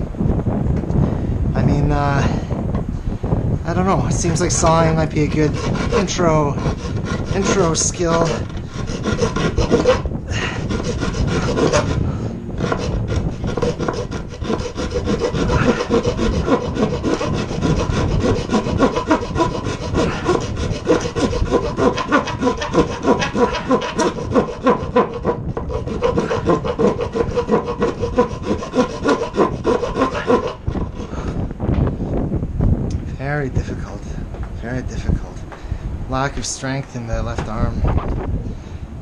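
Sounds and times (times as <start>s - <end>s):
handsaw cutting wood: 4.1s - 31.4s.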